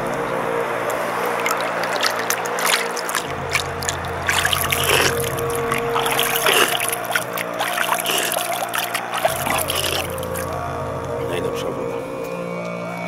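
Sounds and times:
river water rushing and splashing: 0.0s - 10.5s
background music: 0.0s - 13.0s
hand dipping into water: 1.2s - 10.5s.

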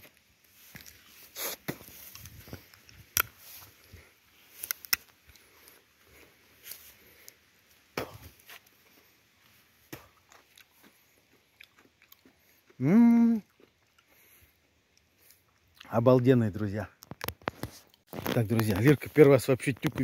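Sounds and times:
footsteps on dirt: 0.0s - 4.7s
sharp cracks and clicks: 4.6s - 5.4s.

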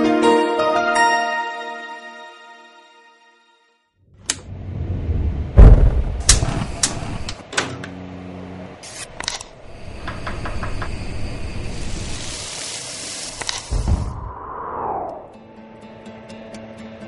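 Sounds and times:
food frying in oil: 11.6s - 13.4s.

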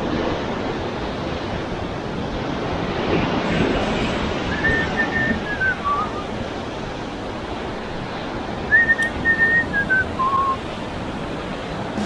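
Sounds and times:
surf breaking over rocks: 0.0s - 12.0s
whistled descending notes: 4.5s - 6.3s, 8.7s - 10.6s.

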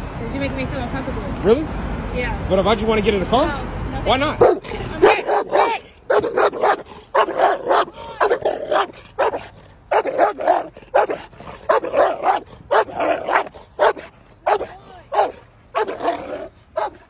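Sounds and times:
large dog barking: 4.4s - 17.0s.

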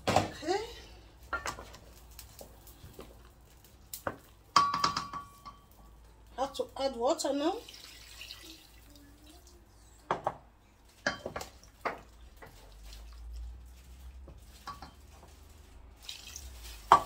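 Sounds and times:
spoon knocking on metal pot: 4.5s - 5.6s
water pouring into a pot: 7.2s - 9.6s, 11.0s - 17.0s.

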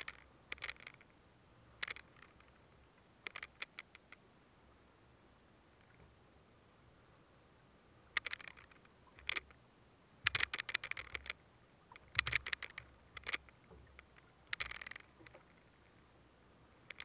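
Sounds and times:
fishing line scraping: 0.0s - 1.1s, 1.8s - 4.2s, 8.2s - 9.6s, 10.3s - 16.0s.

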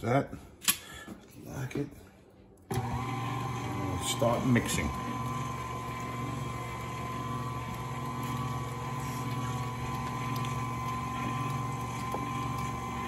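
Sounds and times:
stand mixer running: 2.7s - 13.0s.

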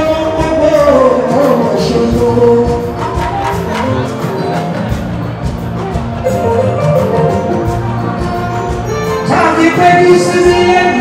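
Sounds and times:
held instrument notes: 0.0s - 11.0s
percussion: 0.0s - 11.0s.

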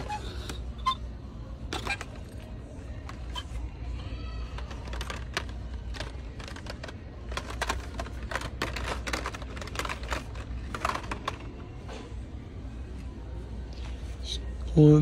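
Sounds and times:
plastic packs clacking: 4.4s - 11.6s.

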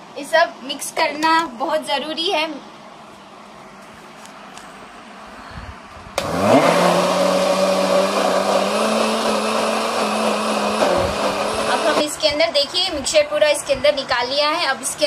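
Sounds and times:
mixer grinder motor whine: 6.2s - 12.2s.

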